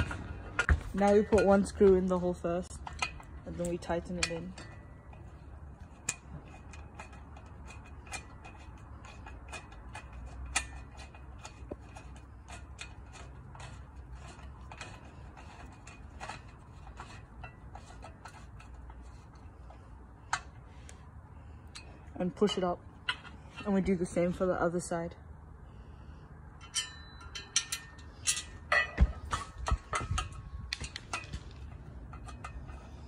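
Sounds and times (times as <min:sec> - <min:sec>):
screwdriver turning screw in metal: 0:02.6 - 0:19.7.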